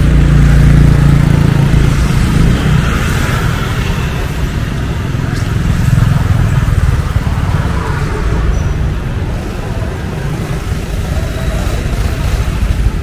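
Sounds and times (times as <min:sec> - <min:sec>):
motorbike and car engines rumbling: 0:00.0 - 0:13.0
faint voices: 0:04.9 - 0:13.0.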